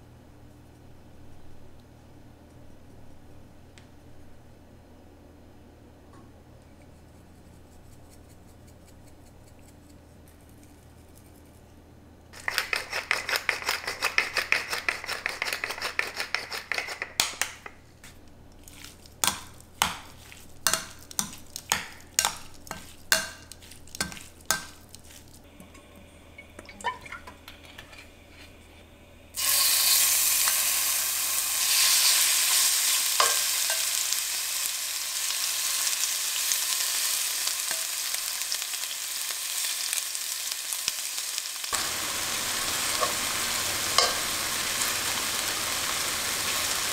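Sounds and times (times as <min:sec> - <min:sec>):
chicken sizzling in hot oil: 0:29.4 - 0:46.9.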